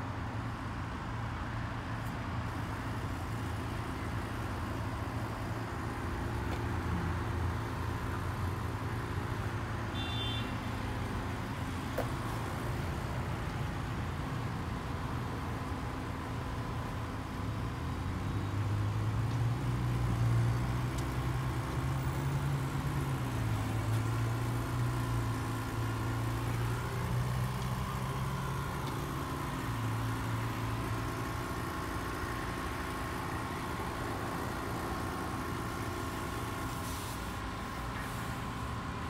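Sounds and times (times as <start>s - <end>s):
car wash brushes humming: 19.5s - 39.0s
faint steady whine: 20.1s - 39.0s.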